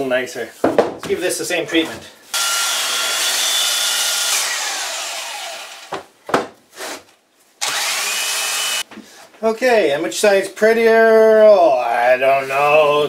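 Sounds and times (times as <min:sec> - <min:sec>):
electric planer cutting wood: 0:02.4 - 0:05.9, 0:07.6 - 0:08.8
motor winding down whine: 0:07.6 - 0:08.8.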